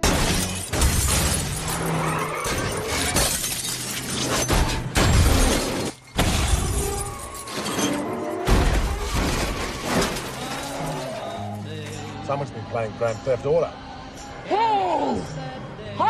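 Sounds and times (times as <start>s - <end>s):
vehicle crashes: 0.0s - 12.0s
glass shattering: 0.0s - 12.1s
music: 0.0s - 16.0s.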